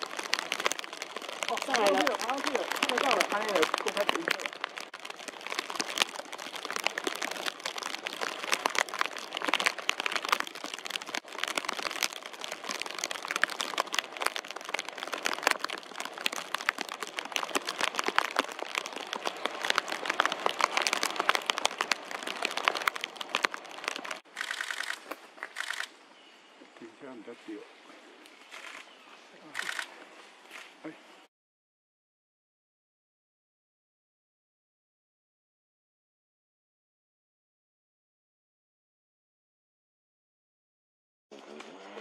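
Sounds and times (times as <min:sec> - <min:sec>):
crackling and crinkling: 0:00.0 - 0:25.9, 0:28.2 - 0:31.0.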